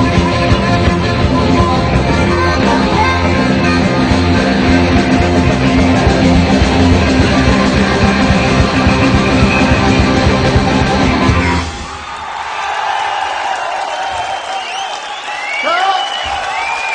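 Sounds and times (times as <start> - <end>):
distorted electric guitar: 0.0 - 11.9
rock band playing live: 0.0 - 11.9
drum kit: 0.0 - 12.0
crowd noise: 0.0 - 16.9.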